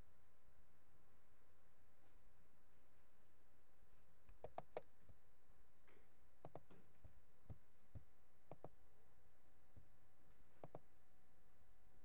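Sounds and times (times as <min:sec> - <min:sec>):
low steady hum: 0:00.0 - 0:12.0
keyboard typing clicks: 0:04.3 - 0:04.9, 0:06.4 - 0:06.7, 0:08.5 - 0:08.8, 0:10.6 - 0:10.8.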